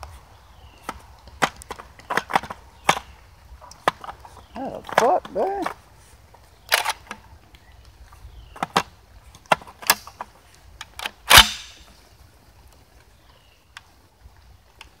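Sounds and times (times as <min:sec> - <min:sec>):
shotgun metallic clicks: 0:06.6 - 0:08.0, 0:08.6 - 0:12.0
shotgun shot echoing: 0:11.3 - 0:11.8.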